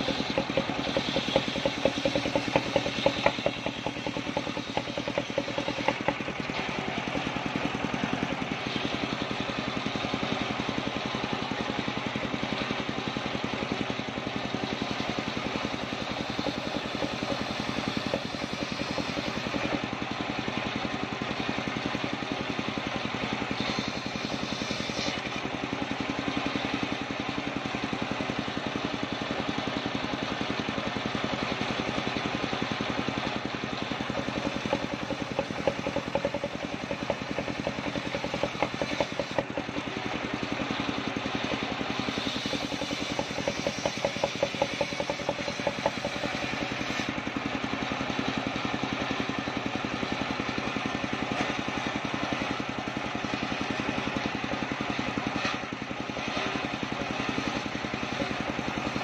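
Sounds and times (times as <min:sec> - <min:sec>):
circular saw ripping wood: 0:00.0 - 0:06.9, 0:15.2 - 0:19.8, 0:33.8 - 0:47.2.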